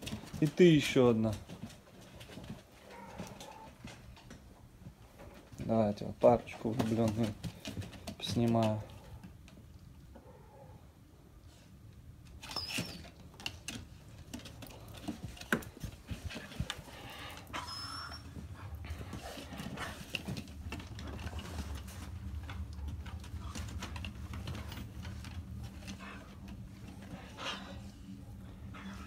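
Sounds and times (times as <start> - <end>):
dog paws scuffling on wooden floor: 0.0 - 9.7, 12.2 - 29.0
dogs squeaking: 12.4 - 13.2, 17.6 - 18.4.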